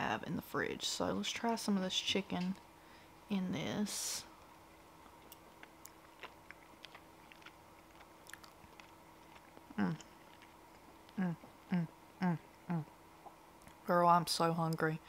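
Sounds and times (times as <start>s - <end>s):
mouth clicks chewing: 5.1s - 11.6s
woman humming: 9.7s - 10.1s, 11.1s - 13.0s.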